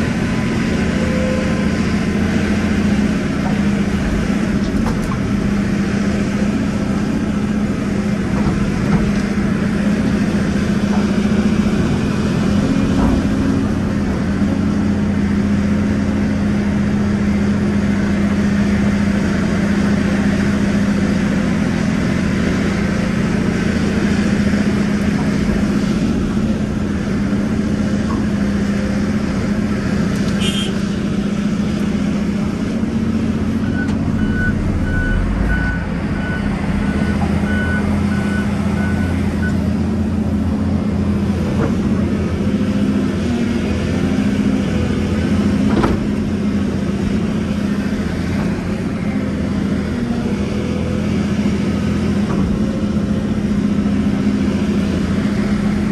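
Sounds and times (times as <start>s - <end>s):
excavator diesel engine humming: 0.0s - 55.9s
reversing alarm beeping: 33.6s - 39.6s.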